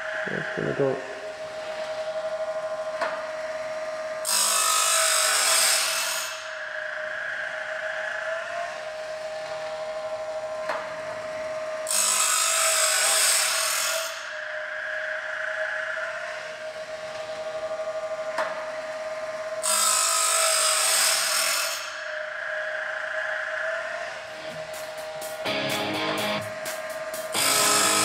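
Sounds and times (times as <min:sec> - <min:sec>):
motor humming: 0:24.2 - 0:28.0
grinding wheel hissing: 0:26.3 - 0:28.0.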